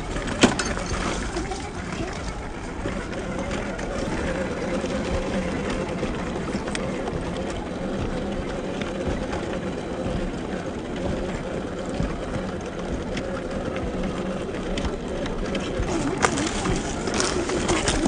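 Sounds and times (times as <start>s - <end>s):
electric motor whine: 1.7s - 18.0s
tyres clicking on rocks: 14.3s - 18.0s.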